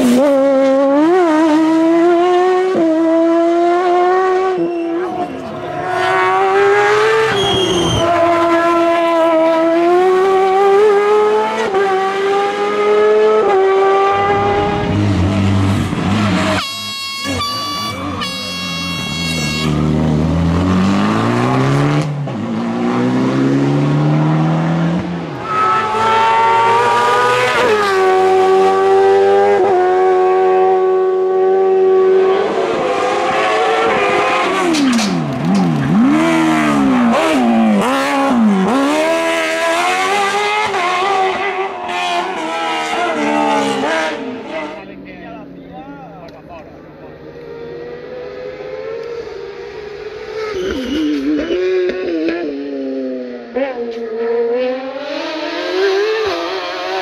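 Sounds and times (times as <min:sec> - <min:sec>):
race car engine at full throttle: 0:00.0 - 0:57.0
throttle blips on downshifts: 0:50.2 - 0:52.5.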